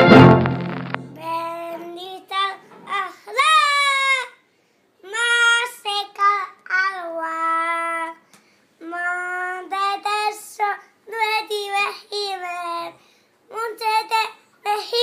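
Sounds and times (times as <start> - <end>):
boy singing unaccompanied: 5.0 - 8.2, 8.8 - 15.0.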